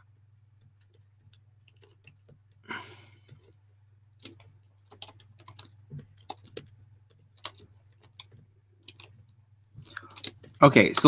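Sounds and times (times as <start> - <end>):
low steady hum: 0.0 - 11.0
keyboard keys clicking: 4.2 - 9.2.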